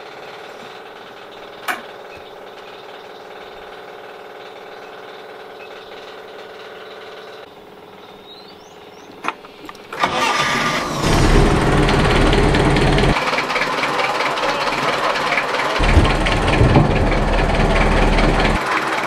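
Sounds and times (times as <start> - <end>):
steady mechanical hum: 0.0 - 19.0
boat engine starting: 9.9 - 19.0.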